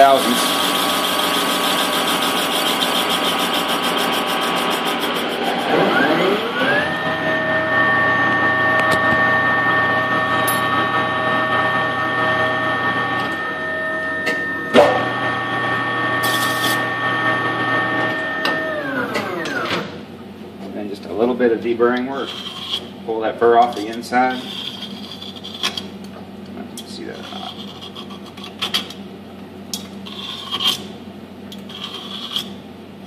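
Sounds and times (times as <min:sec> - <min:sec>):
lathe cutting metal: 0:00.0 - 0:19.6
motor whine: 0:00.0 - 0:20.0.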